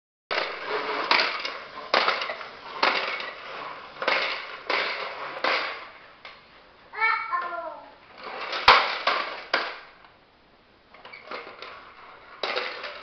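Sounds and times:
toy balls popping and clattering: 0.3 - 5.9, 8.2 - 10.0, 12.4 - 13.0.

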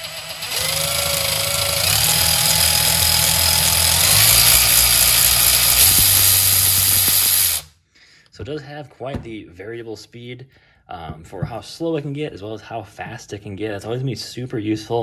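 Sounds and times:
cordless ratchet motor whine: 0.0 - 7.7.

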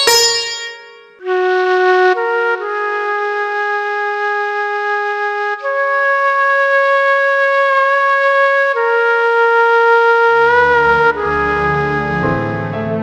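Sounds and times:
wind instrument melody: 8.8 - 13.0.

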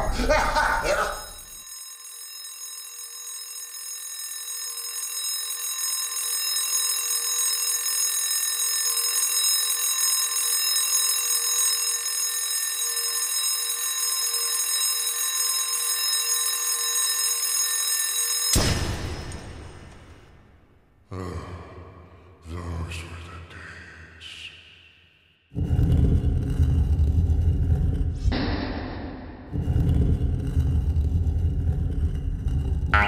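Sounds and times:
alarm clock ringing: 0.0 - 20.3, 29.5 - 33.0.

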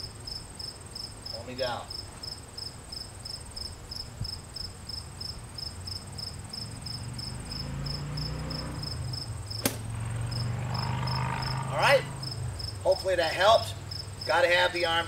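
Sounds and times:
crickets chirping: 0.0 - 15.0
golf club striking ball: 9.6 - 9.9.

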